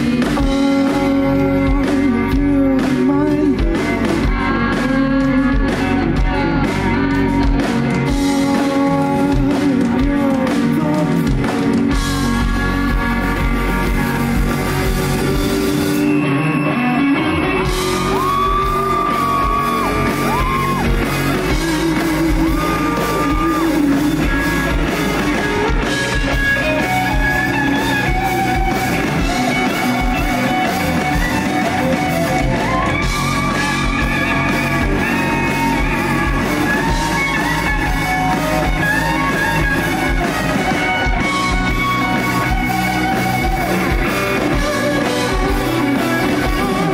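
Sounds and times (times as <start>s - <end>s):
rock band playing live: 0.0s - 46.9s
electric guitar held notes: 10.8s - 46.9s.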